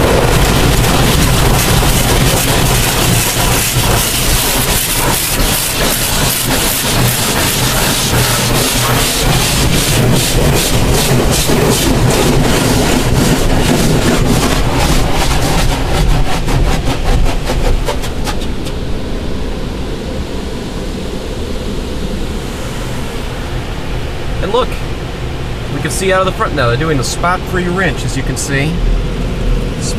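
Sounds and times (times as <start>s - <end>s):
water spray hissing on car: 0.0s - 18.7s
low rumble: 0.0s - 29.9s.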